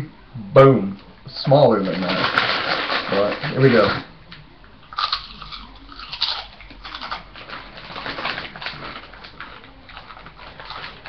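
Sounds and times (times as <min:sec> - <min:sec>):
crunching tortilla chip: 0:01.8 - 0:04.0, 0:04.9 - 0:11.0.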